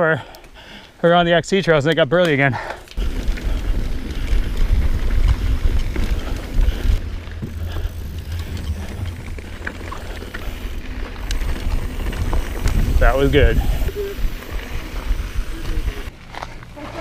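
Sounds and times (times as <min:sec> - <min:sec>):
bike tyre noise on dirt: 0:02.6 - 0:17.0
bike rattling over bumps: 0:03.0 - 0:16.1
wind rumble on microphone: 0:03.0 - 0:16.1.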